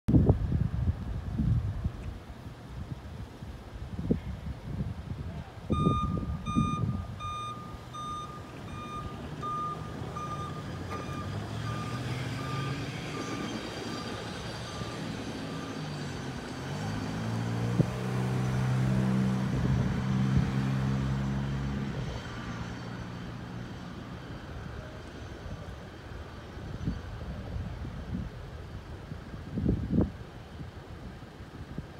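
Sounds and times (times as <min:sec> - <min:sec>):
steady engine hum: 0:00.1 - 0:31.9
truck reverse alarm beeping: 0:05.7 - 0:16.4.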